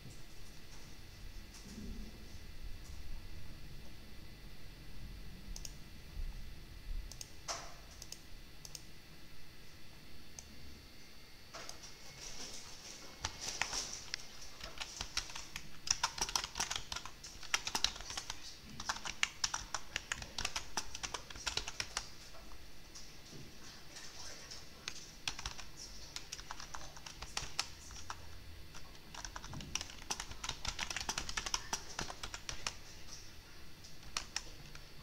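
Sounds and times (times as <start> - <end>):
typing on computer keyboard: 13.2 - 22.3, 24.8 - 32.9, 34.0 - 34.8.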